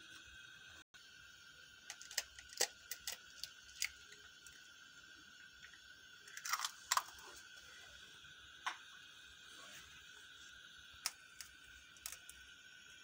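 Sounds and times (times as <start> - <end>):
eggshell cracking: 1.9 - 4.6, 6.2 - 7.2, 11.0 - 12.4.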